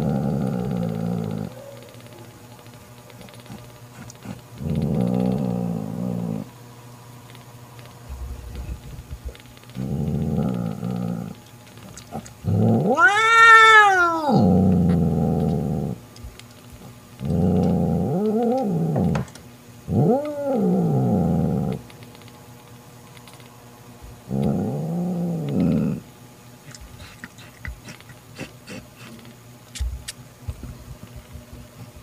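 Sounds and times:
cat growling: 0.0s - 2.3s, 3.2s - 6.5s, 8.1s - 16.0s, 16.8s - 19.2s, 19.9s - 21.8s, 24.3s - 26.1s, 26.7s - 29.2s
cat yowling: 12.7s - 14.6s.

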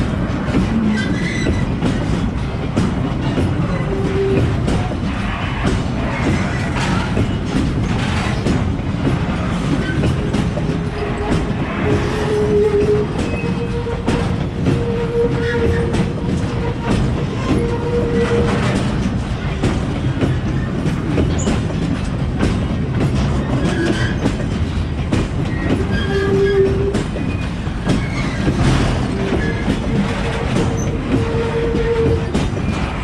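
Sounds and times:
freight wagons rumbling past: 0.0s - 33.0s
wheels clicking over rail joints: 0.0s - 33.0s
metallic wheel squeals: 0.8s - 1.8s, 9.7s - 19.0s, 25.5s - 33.0s.

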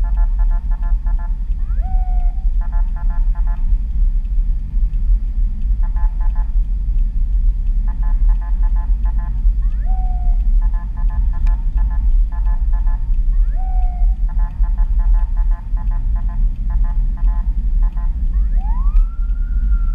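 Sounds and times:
pulsing electronic siren: 0.0s - 3.7s, 5.8s - 6.5s, 7.8s - 19.9s
car road rumble: 0.0s - 19.9s
police siren whoops: 1.6s - 3.1s, 9.2s - 11.1s, 13.4s - 14.8s, 18.0s - 19.9s.

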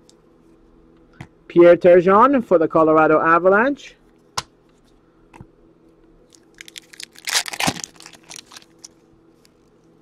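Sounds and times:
foil wrapper tearing and crinkling: 6.3s - 9.0s.

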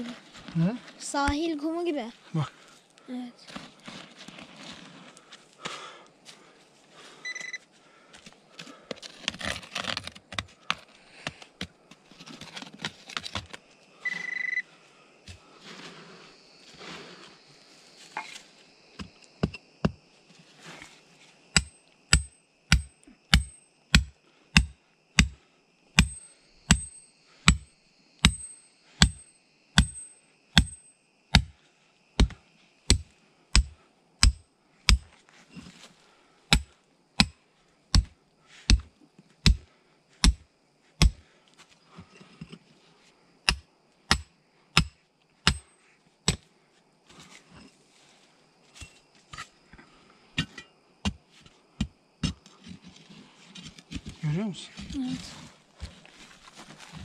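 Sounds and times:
metal tool striking with ring: 26.0s - 31.0s.

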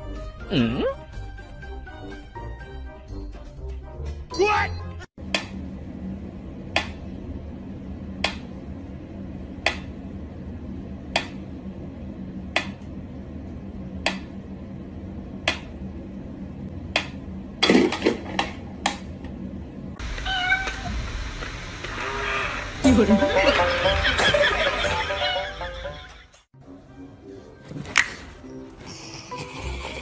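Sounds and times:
low steady hum: 5.2s - 24.0s.

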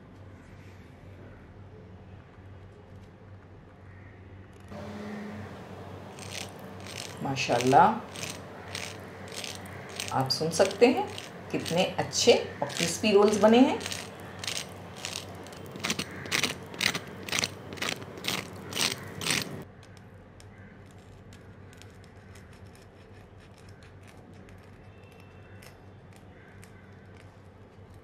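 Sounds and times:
fork crunching crisp crust: 6.0s - 19.6s
knife cutting with crackles: 6.1s - 19.6s.

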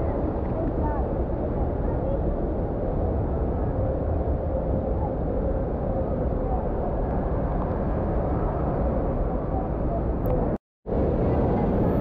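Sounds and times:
distant children's voices: 0.0s - 2.6s.

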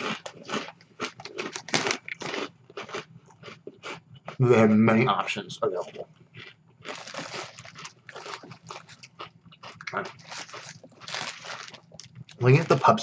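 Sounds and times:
paper wrapper rustling: 6.9s - 9.1s, 10.1s - 13.0s.

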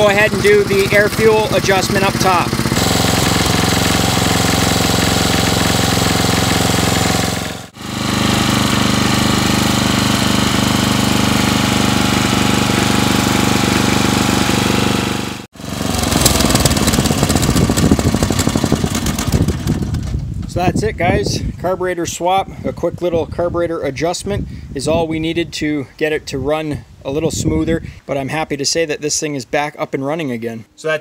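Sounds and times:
lawn mower engine running: 0.0s - 20.5s.

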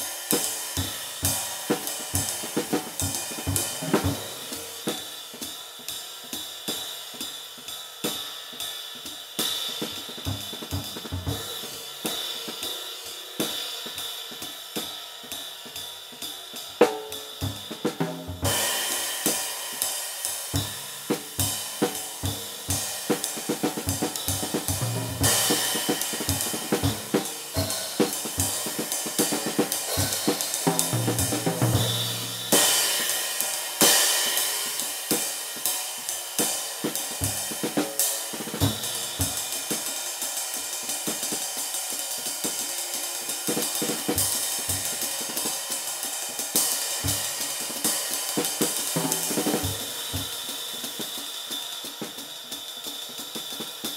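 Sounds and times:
snare and bass drum hits: 0.0s - 5.1s, 9.8s - 11.8s, 20.5s - 33.2s, 36.9s - 39.5s, 48.4s - 50.5s
ride cymbal strokes: 0.0s - 53.9s
low tom passages: 1.8s - 4.9s, 23.6s - 33.0s.

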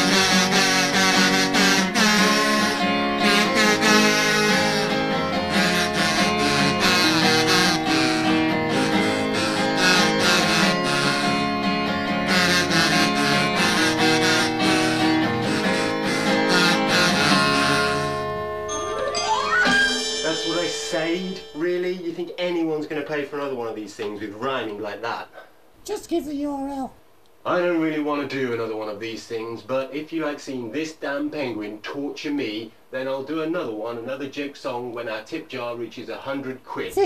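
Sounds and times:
acoustic guitar strumming: 0.0s - 23.0s.

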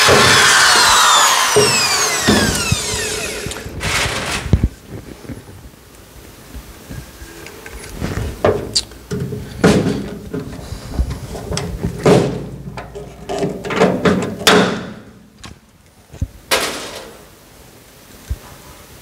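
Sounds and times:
metal handling clatter: 11.3s - 14.6s.

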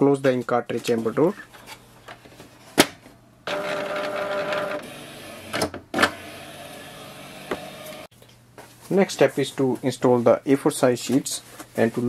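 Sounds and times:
printer motor whirring: 3.5s - 8.1s.

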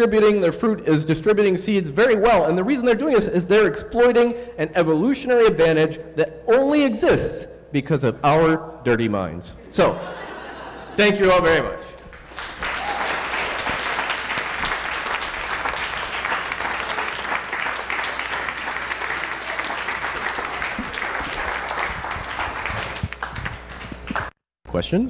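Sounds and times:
audience applauding: 12.1s - 24.4s.

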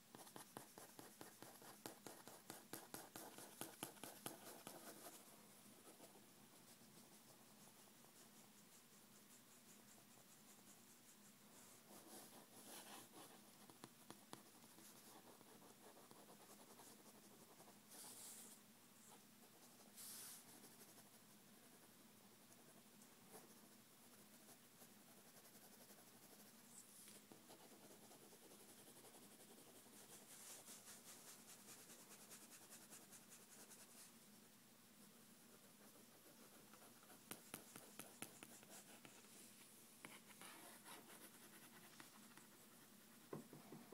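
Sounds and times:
pen scratching on paper: 0.1s - 5.2s, 35.7s - 39.3s.

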